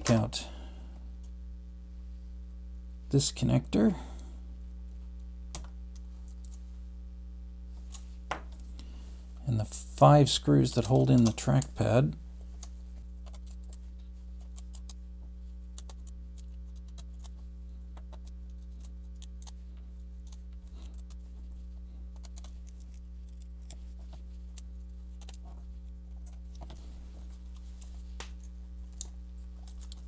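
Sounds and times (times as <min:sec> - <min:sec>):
steady low hum: 0:00.0 - 0:30.0.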